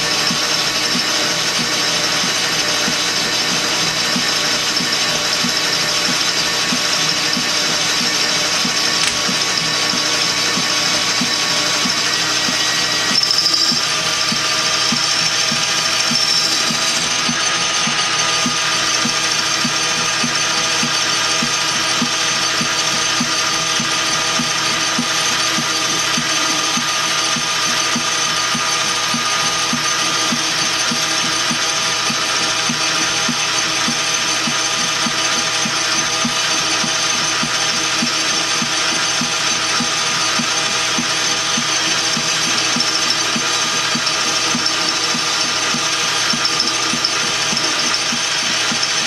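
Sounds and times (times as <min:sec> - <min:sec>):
metal lathe whirring: 0:00.0 - 0:49.0
regular ticking: 0:41.6 - 0:49.0.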